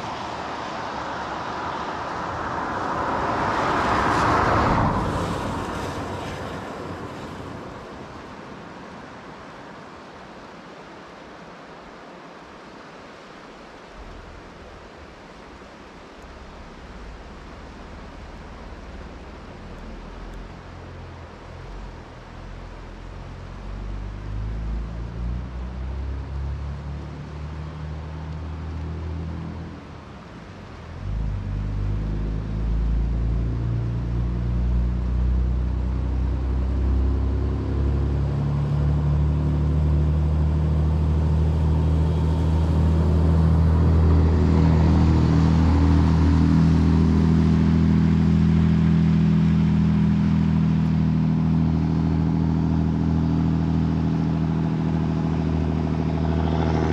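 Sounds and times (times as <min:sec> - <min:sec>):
vehicle engine running: 0:14.0 - 0:26.0, 0:29.8 - 0:56.9.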